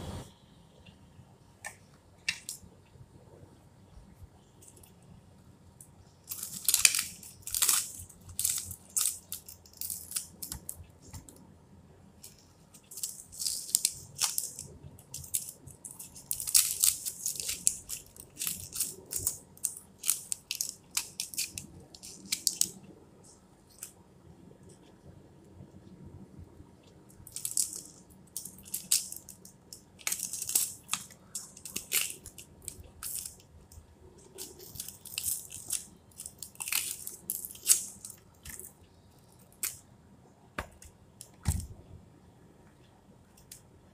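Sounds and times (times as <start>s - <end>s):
onion skin crackling: 6.2s - 11.3s, 12.2s - 22.8s, 27.2s - 39.8s.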